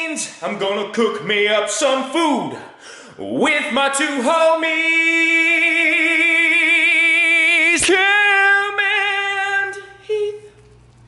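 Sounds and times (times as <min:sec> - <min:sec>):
man singing with vibrato: 0:03.1 - 0:10.6.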